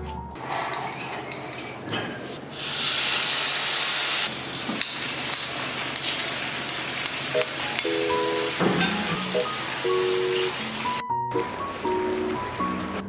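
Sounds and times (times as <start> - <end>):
loud steady hiss: 2.4 - 8.6
food sizzling in a pan: 2.5 - 11.0.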